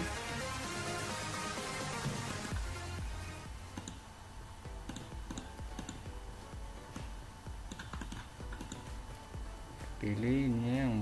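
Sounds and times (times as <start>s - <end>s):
low steady hum: 0.0s - 11.0s
computer mouse and keyboard clicking: 3.8s - 4.0s, 4.9s - 6.1s, 7.7s - 8.9s.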